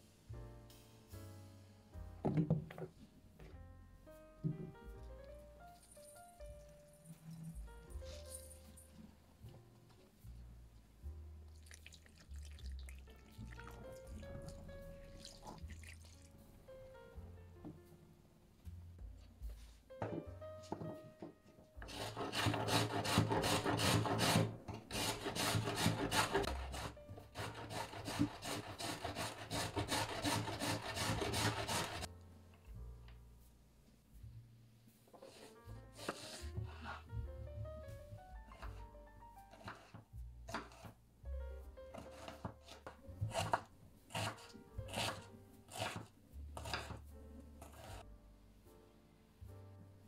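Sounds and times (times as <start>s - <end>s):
carrot grating on metal grater: 21.9s - 32.1s, 42.0s - 47.0s, 47.6s - 48.0s
knife dicing onion on wooden board: 39.5s - 40.9s, 42.0s - 47.0s.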